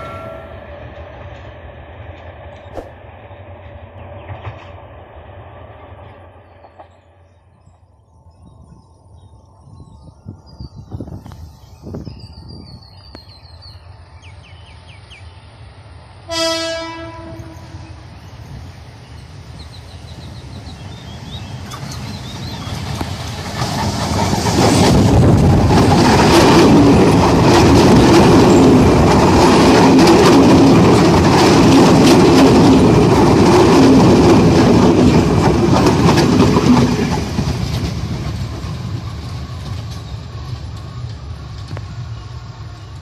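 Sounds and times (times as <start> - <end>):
train engine rumbling: 0.0 - 43.0
wheels clattering over rail joints: 21.3 - 42.0.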